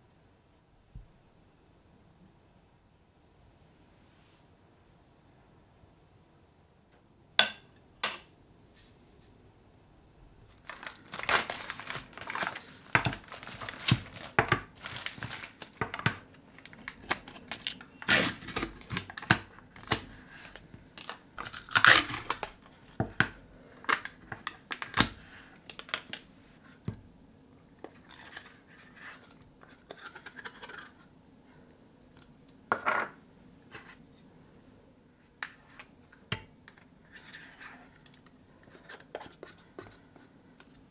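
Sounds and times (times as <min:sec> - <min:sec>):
foil lids tearing and crinkling: 0:10.5 - 0:22.7, 0:23.8 - 0:26.2.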